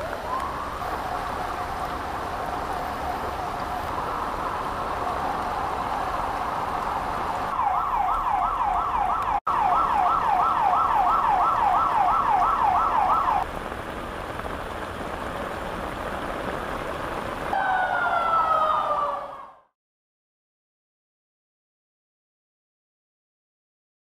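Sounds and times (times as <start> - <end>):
emergency siren wailing: 0.0 - 13.4, 17.5 - 19.7
heavy rain: 0.0 - 19.6.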